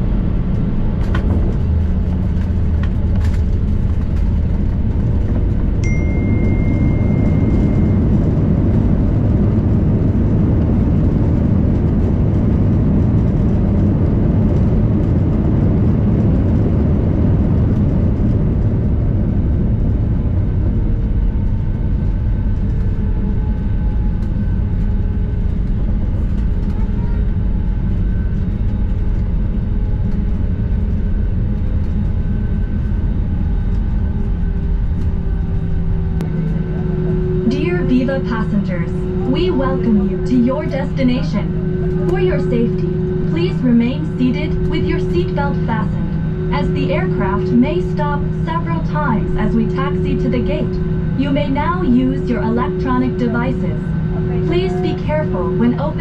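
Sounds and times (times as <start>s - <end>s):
rumble of engines and wheels: 0.0s - 56.0s
high steady tone: 5.8s - 9.1s, 36.2s - 56.0s.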